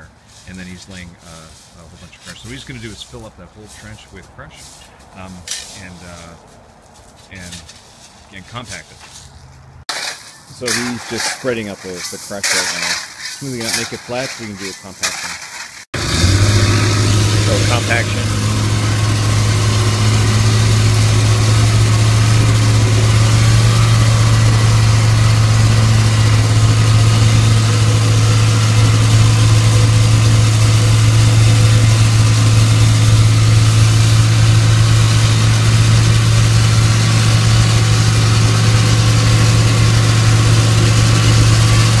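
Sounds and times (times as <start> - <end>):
plate compactor droning: 16.0 - 42.0.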